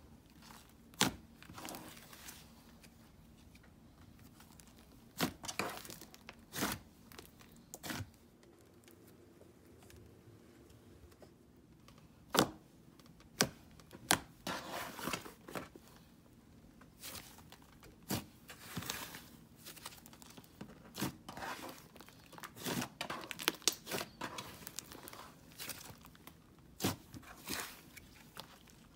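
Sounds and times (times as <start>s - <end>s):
slime crackling and squishing: 4.2s - 8.9s, 16.9s - 28.9s.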